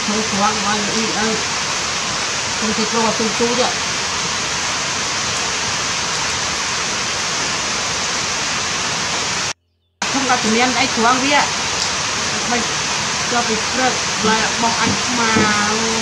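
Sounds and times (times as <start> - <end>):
voices: 0.0 - 1.4, 2.6 - 3.8, 10.0 - 16.0
running water rushing: 0.0 - 16.0.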